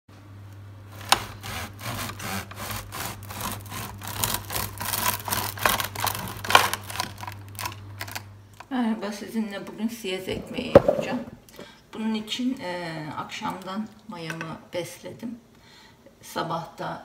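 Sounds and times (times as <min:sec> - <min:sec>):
bread knife sawing through crust: 0:00.9 - 0:06.5.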